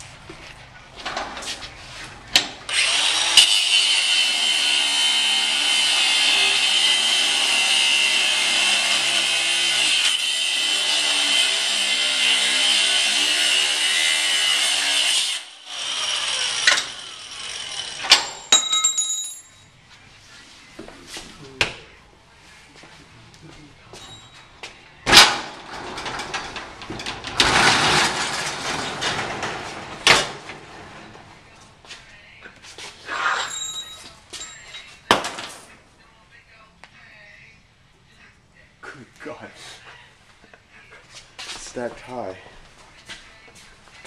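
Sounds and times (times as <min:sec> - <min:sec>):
grinder cutting steel: 0:02.7 - 0:18.3.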